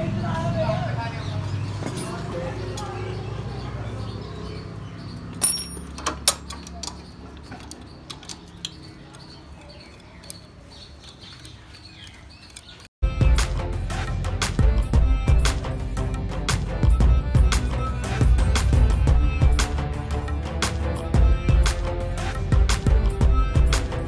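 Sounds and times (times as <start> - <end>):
wrench clinking on metal: 5.4 - 8.8.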